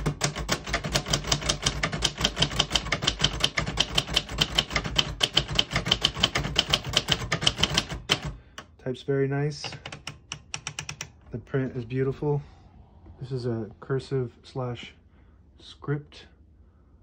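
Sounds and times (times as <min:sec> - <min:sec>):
manual typewriter typing: 0:00.0 - 0:08.6, 0:09.6 - 0:11.2.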